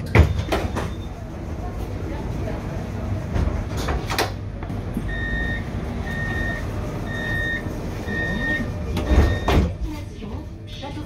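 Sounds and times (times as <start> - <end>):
low hum of tram: 0.0 - 11.0
tram warning beeps: 5.0 - 9.7.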